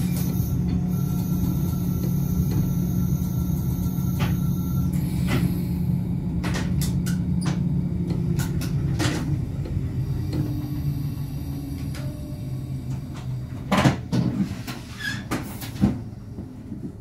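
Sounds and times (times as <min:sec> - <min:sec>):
low equipment hum: 0:00.0 - 0:14.9
clunks and clicks of doors: 0:06.4 - 0:10.5, 0:12.9 - 0:17.0.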